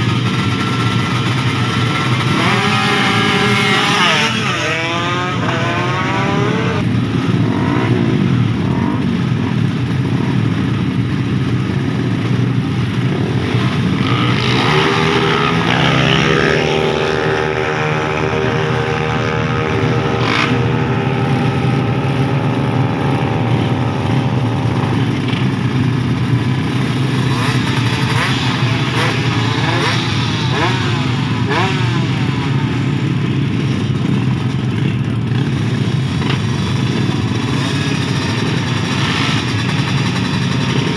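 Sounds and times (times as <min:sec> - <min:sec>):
racing motorcycle engines revving: 0:00.0 - 0:40.9.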